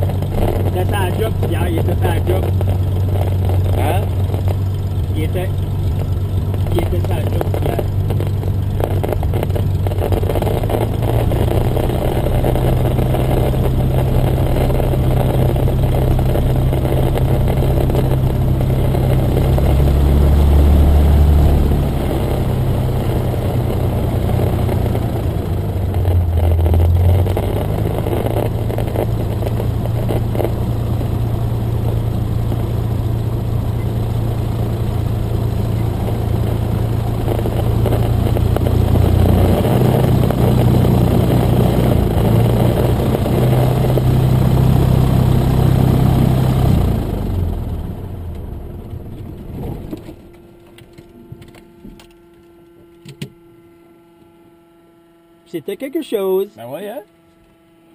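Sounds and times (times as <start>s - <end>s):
propeller plane engine drone: 0.0s - 57.9s.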